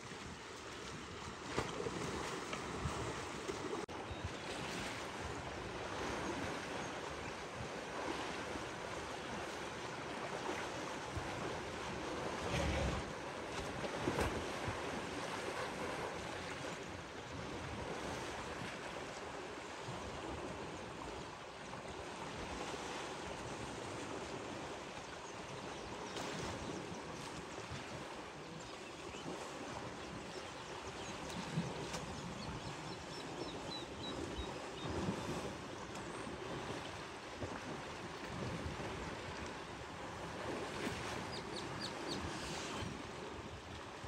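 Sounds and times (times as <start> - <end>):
water sloshing and splashing: 0.0 - 19.3, 34.2 - 44.0.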